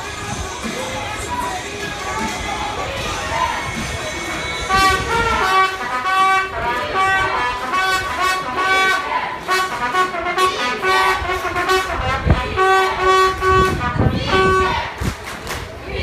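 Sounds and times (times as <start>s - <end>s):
crowd voices: 0.0s - 16.0s
horn tooting short blasts: 4.7s - 14.9s.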